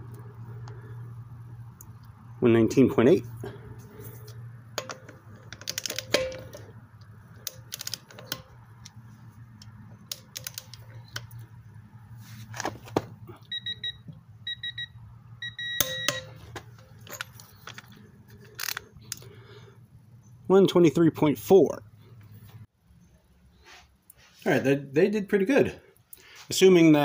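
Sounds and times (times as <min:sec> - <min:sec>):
wrench and socket knocks: 0:04.8 - 0:06.7
short electronic beeps: 0:13.5 - 0:16.4.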